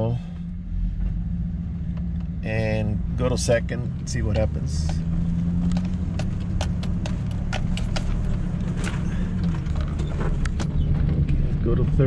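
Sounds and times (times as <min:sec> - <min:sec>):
pickup engine drone: 0:00.0 - 0:12.0
cab clicks and rattles: 0:04.4 - 0:11.4.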